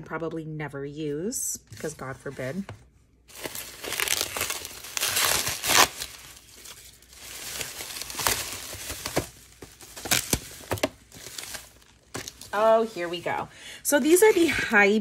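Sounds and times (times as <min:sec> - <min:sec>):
bubble wrap crinkling: 0:03.3 - 0:13.5.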